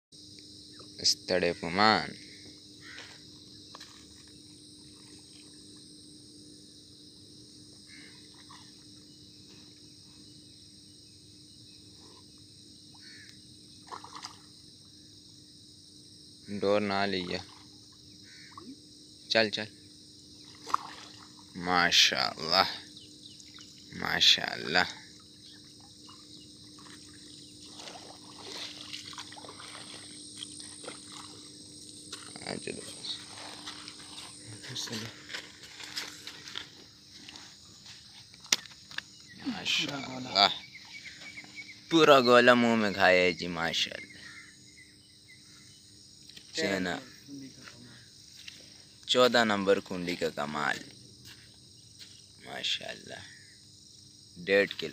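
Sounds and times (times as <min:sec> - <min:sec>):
crickets chirping: 0:00.1 - 0:54.9
high-pitched background hiss: 0:00.2 - 0:54.9
shallow water splashing: 0:13.8 - 0:14.5, 0:20.4 - 0:21.6, 0:24.8 - 0:36.8.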